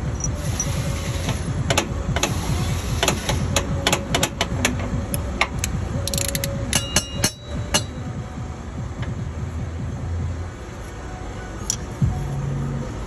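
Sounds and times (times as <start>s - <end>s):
steady low rumble: 0.0s - 13.0s
metallic tool clicks and taps: 3.0s - 7.9s, 11.6s - 11.9s
short metallic ring: 6.7s - 8.1s.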